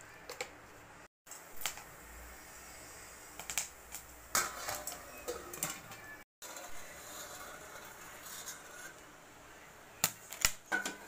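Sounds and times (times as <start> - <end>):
popcorn popping in oil: 1.3 - 9.1, 10.0 - 11.0.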